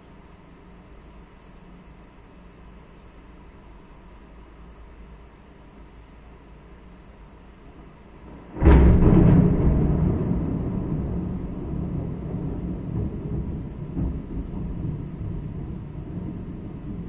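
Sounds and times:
thunder crack and rumble: 7.7 - 17.0
heavy rain: 7.8 - 17.0.

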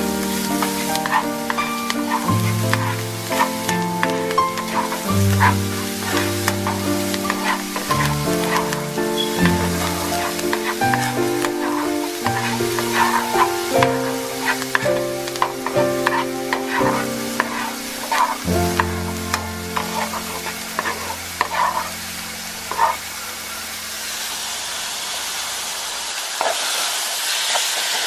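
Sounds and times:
background music: 0.0 - 23.9
food sizzling in a pan: 0.0 - 28.0
spoon tapping and scraping pan: 0.5 - 20.2.

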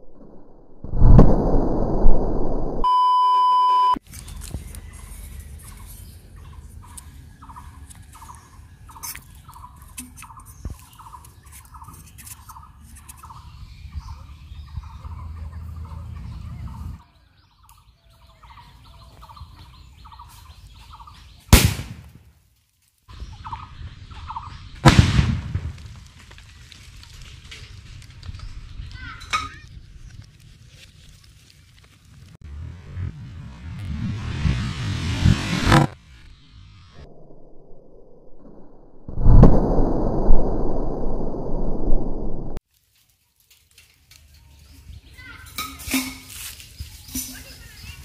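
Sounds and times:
test-tone beep: 2.8 - 4.0
firecracker bangs: 21.5 - 22.2, 24.8 - 26.1.

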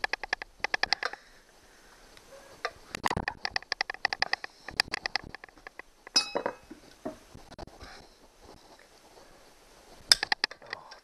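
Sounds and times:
sharp metal clink: 6.2 - 6.6.

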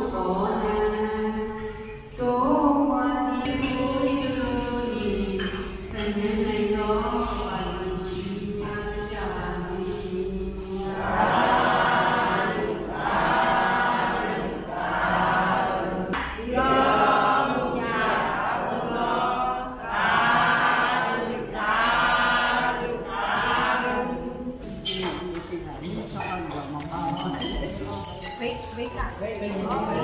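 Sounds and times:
voices chanting in unison: 2.3 - 24.7.

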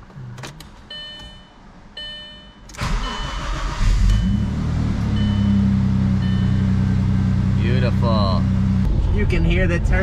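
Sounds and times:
car engine starting and idling: 2.7 - 9.8.

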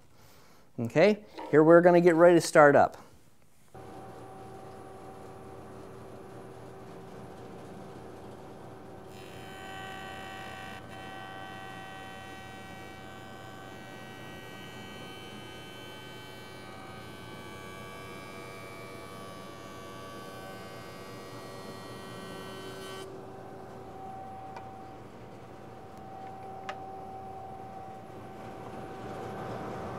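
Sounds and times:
jointer cutting wood: 3.8 - 23.1
jointer motor hum: 3.8 - 29.9.

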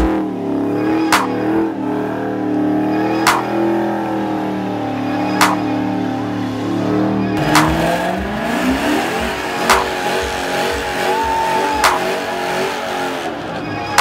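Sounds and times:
car engine revving high: 0.0 - 14.0
sharp crack: 1.1 - 1.4, 3.2 - 3.5, 5.4 - 5.6, 7.4 - 7.8, 9.7 - 9.9.

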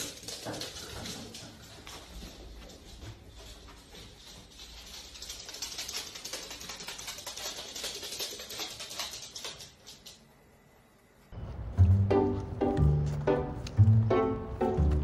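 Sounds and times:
dog claws clicking on floor: 0.0 - 10.3
music: 11.4 - 15.0.

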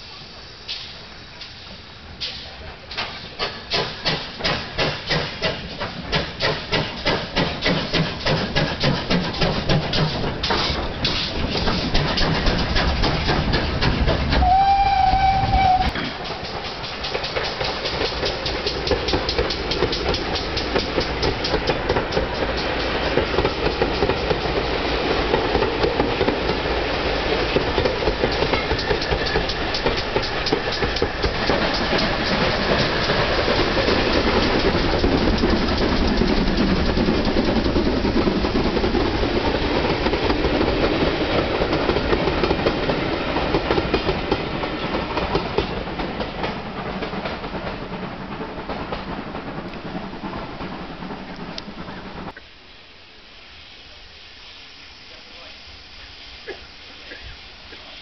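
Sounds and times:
train wheels clicking over rail joints: 0.7 - 52.4
steam locomotive whistle: 14.3 - 16.1.

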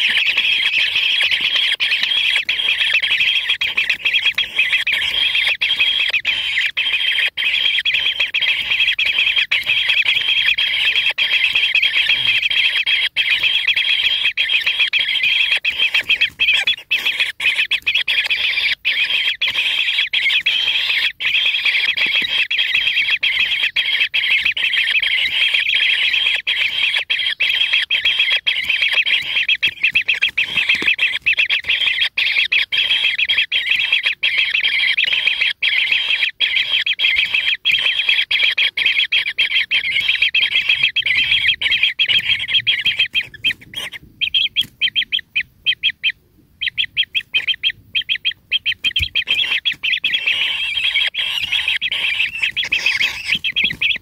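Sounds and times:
nestlings begging calls: 0.0 - 54.0.

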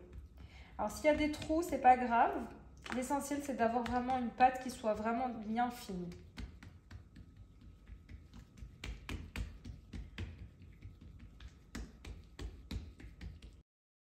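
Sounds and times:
hands slapping dough on countertop: 1.0 - 1.8, 2.8 - 5.2, 5.9 - 13.6.

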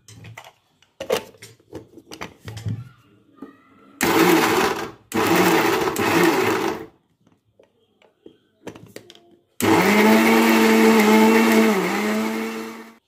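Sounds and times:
mixer grinder grinding: 4.0 - 6.9, 9.6 - 13.0.

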